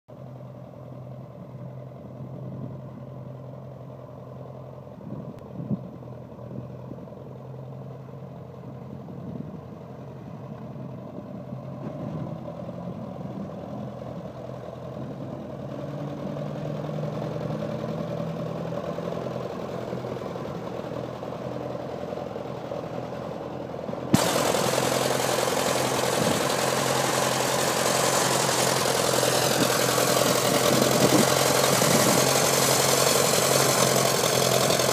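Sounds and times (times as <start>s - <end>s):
tractor engine idling: 0.1s - 34.9s.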